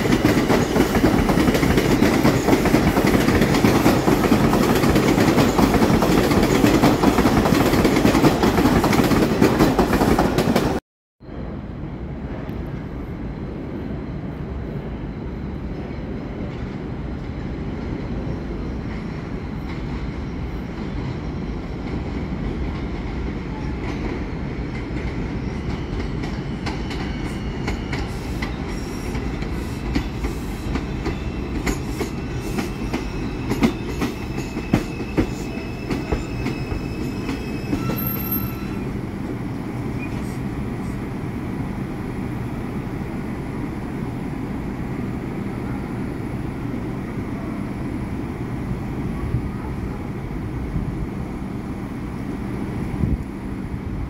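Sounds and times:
wheels squealing on rails: 0:23.2 - 0:41.2.

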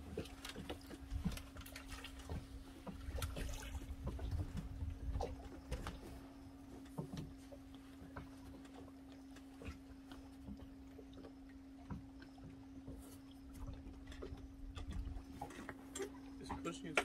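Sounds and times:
low hum: 0:00.0 - 0:17.0
water rumbling against hull: 0:00.0 - 0:17.0.

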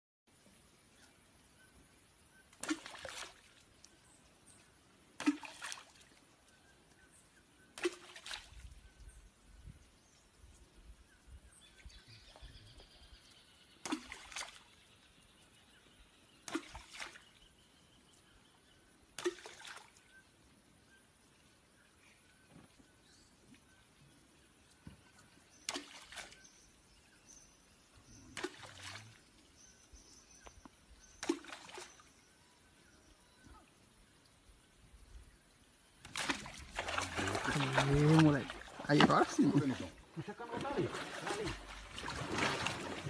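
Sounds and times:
pole slapping water splashes: 0:02.5 - 0:03.9, 0:05.2 - 0:06.2, 0:07.7 - 0:08.8, 0:13.8 - 0:14.8, 0:16.4 - 0:17.4, 0:19.2 - 0:20.0, 0:25.6 - 0:26.6, 0:28.3 - 0:29.2, 0:31.1 - 0:32.1, 0:36.0 - 0:43.0
wash of water: 0:36.0 - 0:43.0.

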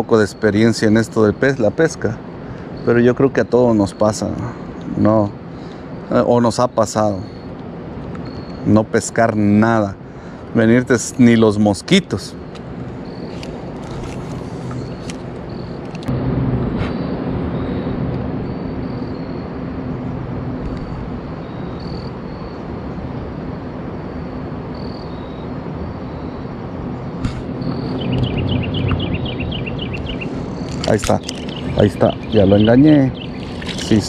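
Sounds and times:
low hum: 0:12.3 - 0:34.0.

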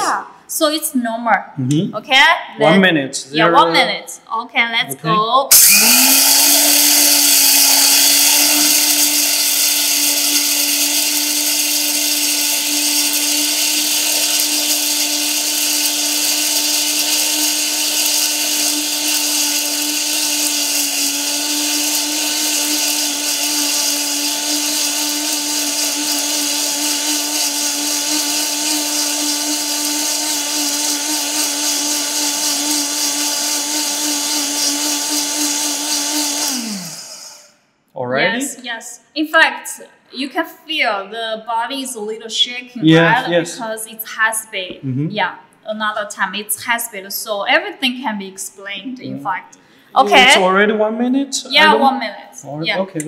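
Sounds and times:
grinder motor with hiss: 0:05.5 - 0:37.6.

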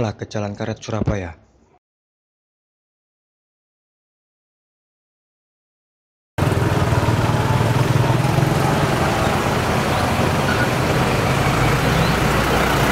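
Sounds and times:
street traffic with engines humming: 0:06.4 - 0:12.9.

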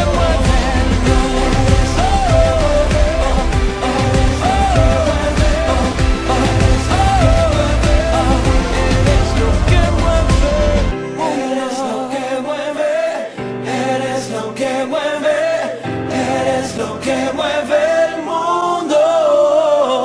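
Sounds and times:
heavy bass: 0:00.0 - 0:11.0
sung melody over held chords: 0:00.0 - 0:11.6.

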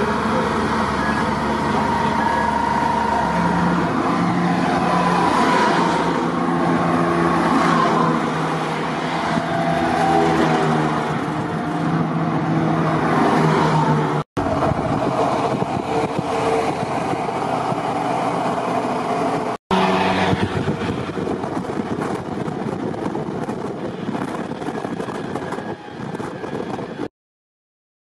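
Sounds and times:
diesel engines running: 0:00.0 - 0:27.0
heavy tyres rolling on asphalt: 0:00.0 - 0:27.1.

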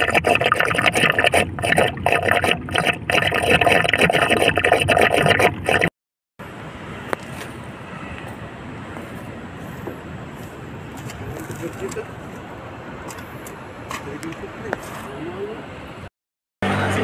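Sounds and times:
water spraying from leaking pipe: 0:00.0 - 0:05.9
steady background noise: 0:06.4 - 0:17.0.

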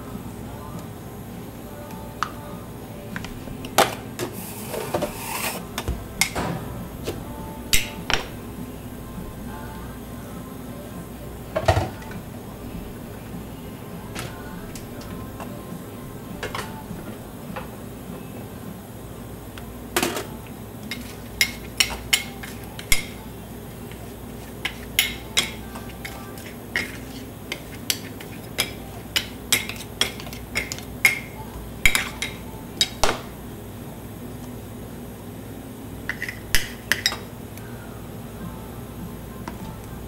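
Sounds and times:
low steady hum: 0:00.0 - 0:40.0
metal spatulas clacking and scraping: 0:20.9 - 0:23.2, 0:24.6 - 0:31.3.

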